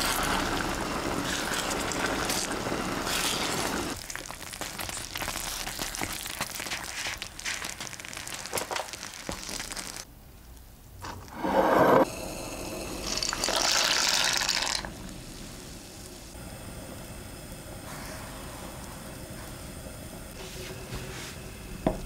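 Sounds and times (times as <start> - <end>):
water pouring: 0.0 - 4.0, 12.1 - 15.1
pasta boiling in water: 0.0 - 10.1, 12.0 - 22.0
sauce bubbling in a frying pan: 0.0 - 10.1, 12.1 - 20.1.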